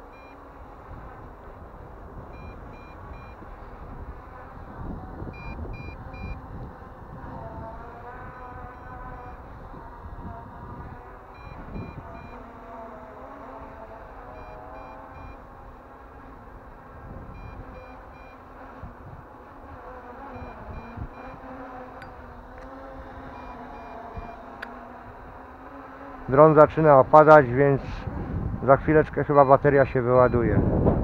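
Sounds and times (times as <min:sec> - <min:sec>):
wind noise: 0:00.0 - 0:12.5, 0:13.2 - 0:31.0
drone propellers humming: 0:00.0 - 0:31.0
short high beeps: 0:00.1 - 0:00.4, 0:02.4 - 0:03.4, 0:05.4 - 0:06.4, 0:11.4 - 0:12.4, 0:14.4 - 0:15.4, 0:17.4 - 0:18.4, 0:23.3 - 0:24.5.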